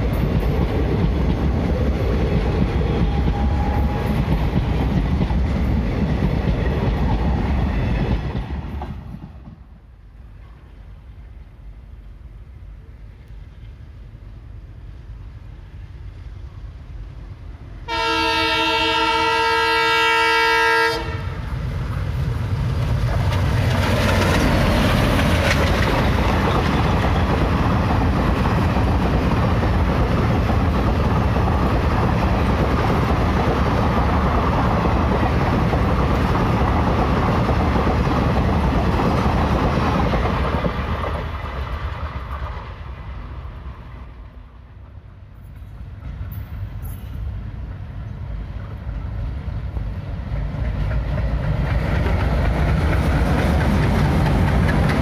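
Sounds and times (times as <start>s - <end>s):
train rumbling past: 0.0s - 55.0s
locomotive horn: 17.8s - 21.4s
wheels clacking over rail joints: 21.7s - 42.7s, 50.3s - 55.0s.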